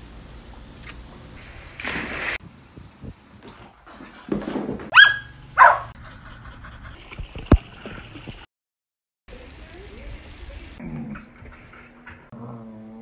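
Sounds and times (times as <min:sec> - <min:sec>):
puppy high-pitched barks: 0:04.9 - 0:06.0.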